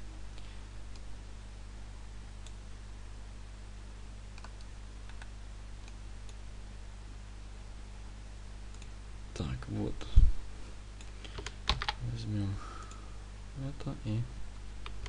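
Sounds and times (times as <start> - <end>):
microphone hum and hiss: 0.0 - 15.0
computer mouse clicks: 4.3 - 6.4, 8.7 - 9.0.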